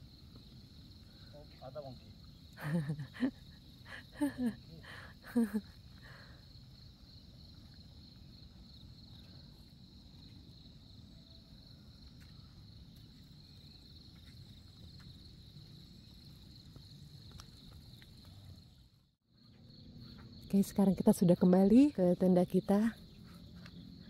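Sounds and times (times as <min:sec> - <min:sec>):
insects chirring: 0:00.0 - 0:24.0.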